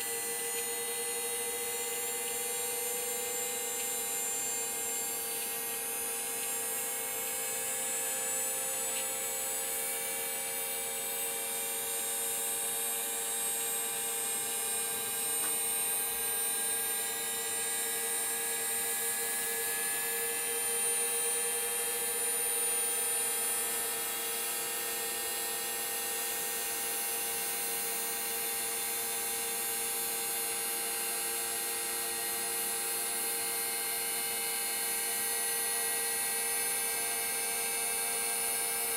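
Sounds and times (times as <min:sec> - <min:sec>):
gyroscope rotor whine: 0:00.0 - 0:38.9
steady hum: 0:00.0 - 0:38.9.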